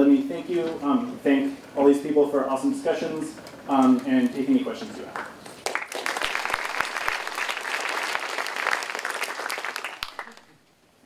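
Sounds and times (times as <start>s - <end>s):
audience clapping: 5.0s - 10.7s.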